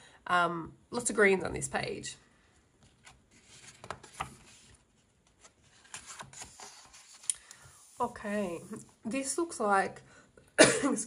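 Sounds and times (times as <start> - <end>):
book pages turning: 2.8 - 8.8.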